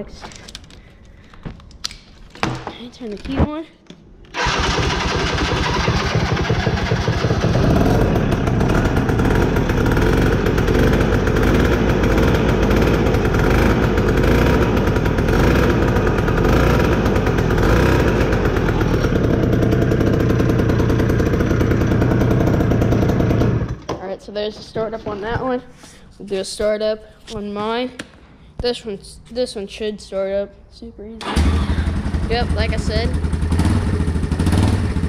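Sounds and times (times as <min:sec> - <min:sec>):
atv engine starting and running: 0:04.3 - 0:23.9, 0:31.2 - 0:35.0.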